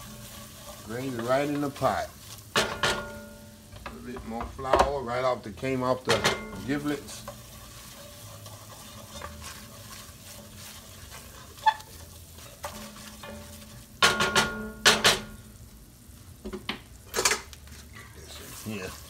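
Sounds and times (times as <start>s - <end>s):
wooden spoon stirring: 0.0s - 3.1s, 6.2s - 14.1s, 17.7s - 19.0s
roux frying with soft sizzle: 0.0s - 19.0s.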